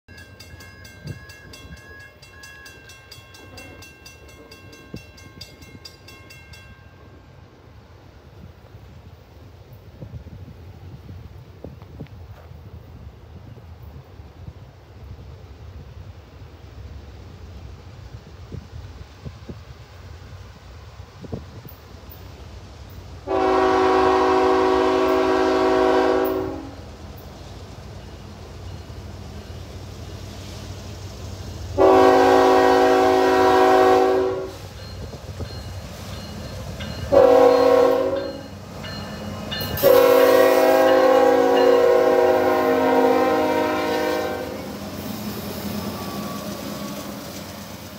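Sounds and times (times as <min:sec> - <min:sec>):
railroad crossing bell ringing: 0:00.1 - 0:07.5, 0:27.9 - 0:29.9, 0:31.8 - 0:47.0
locomotive air horn blast: 0:23.2 - 0:26.8, 0:31.8 - 0:34.7, 0:37.1 - 0:38.4, 0:39.8 - 0:44.8.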